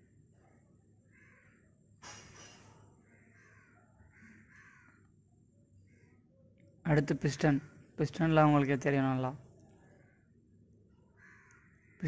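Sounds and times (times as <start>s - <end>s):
faint animal calls: 1.0s - 1.8s, 3.0s - 5.1s.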